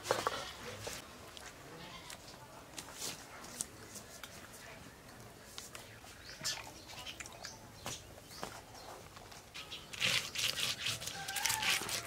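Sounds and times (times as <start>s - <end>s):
knife cutting and scraping fish: 9.9s - 12.0s.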